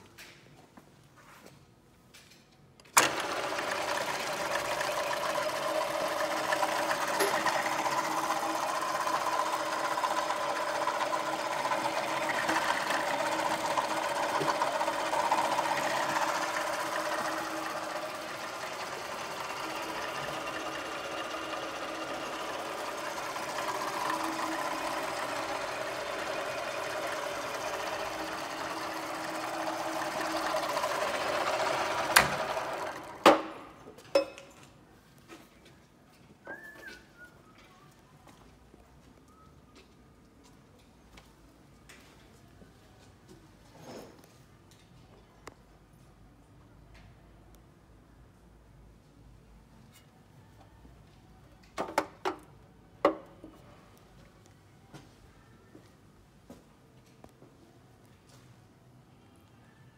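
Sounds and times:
drill motor humming and whining: 0:03.0 - 0:32.9.

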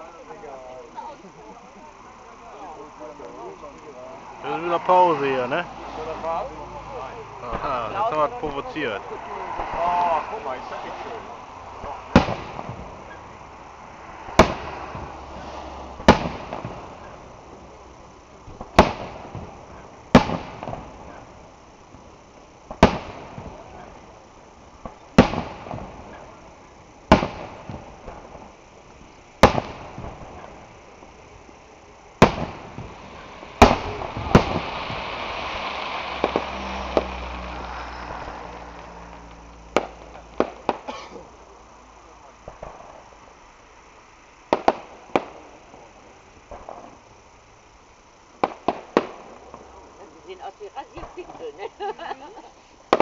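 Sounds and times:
firework crackling: 0:00.0 - 0:53.0
firework shells bursting: 0:09.6 - 0:41.4, 0:44.4 - 0:47.3, 0:48.3 - 0:49.9, 0:50.8 - 0:53.0
small firework pops: 0:11.8 - 0:13.3, 0:14.3 - 0:17.2, 0:18.5 - 0:21.4, 0:22.6 - 0:24.1, 0:24.8 - 0:26.4, 0:27.1 - 0:30.7, 0:32.2 - 0:41.4, 0:42.4 - 0:43.1, 0:44.5 - 0:47.0, 0:48.4 - 0:49.7.

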